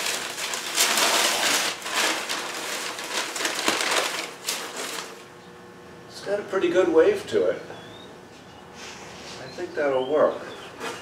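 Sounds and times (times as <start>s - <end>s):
paper rustling and crinkling: 0.0s - 5.3s.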